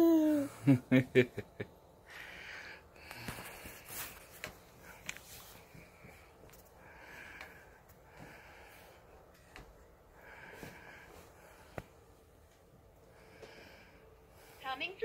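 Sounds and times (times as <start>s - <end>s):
baby breathy sounds: 0.0s - 0.6s
baby giggling: 0.0s - 0.6s.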